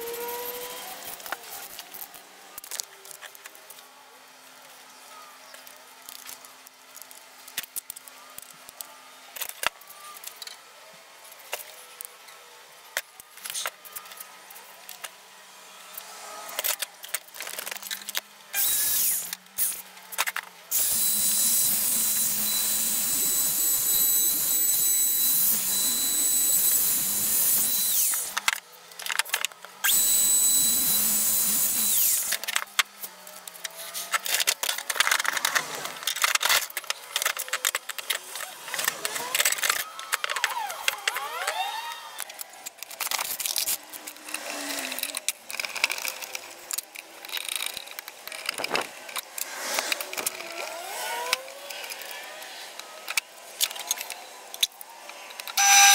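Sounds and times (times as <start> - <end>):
power tool whining: 0.0 - 2.8, 15.9 - 28.6, 29.3 - 55.9.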